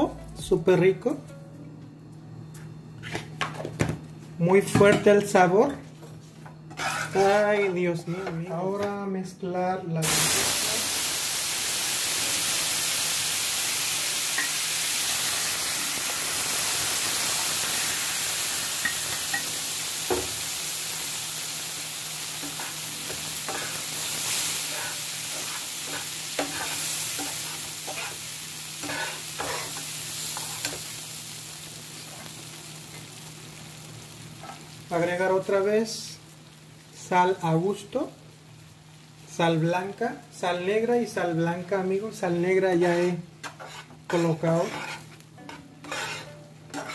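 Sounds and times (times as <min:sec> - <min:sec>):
metal spatula scraping a pan: 0:06.7 - 0:07.5, 0:43.4 - 0:46.9
lentils sizzling in hot ghee: 0:10.0 - 0:46.9.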